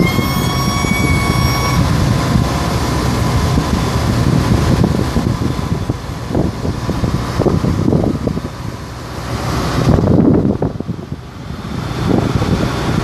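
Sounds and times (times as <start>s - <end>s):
high whine: 0.0s - 8.2s
diesel engine running: 0.0s - 13.0s.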